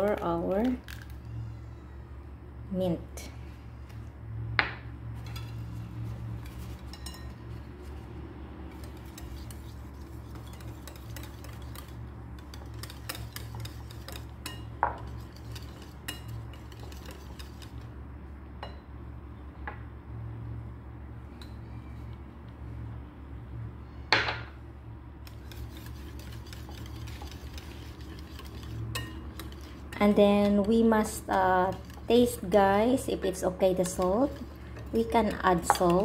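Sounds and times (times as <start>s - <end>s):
whisk scraping in a bowl: 5.2s - 8.1s, 8.7s - 17.9s, 25.2s - 36.0s
whisk clinking on a bowl: 6.4s - 7.7s, 8.7s - 17.8s, 25.2s - 36.0s.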